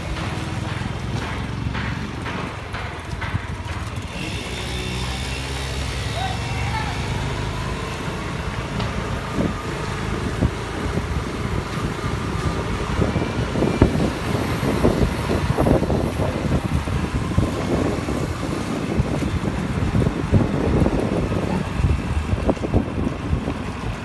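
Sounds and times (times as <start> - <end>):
wind hitting microphone: 7.8 - 24.0.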